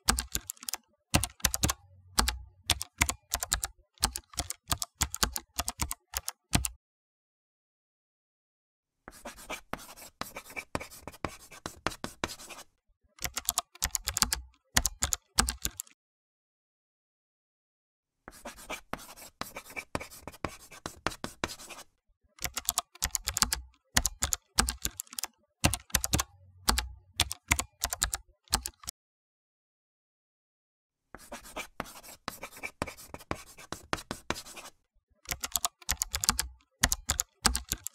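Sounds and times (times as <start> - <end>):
keyboard typing: 0.0 - 6.8, 13.2 - 16.0, 22.4 - 28.9, 31.9 - 37.9
pen scratching on paper: 9.1 - 12.8, 18.3 - 22.0, 31.2 - 34.8.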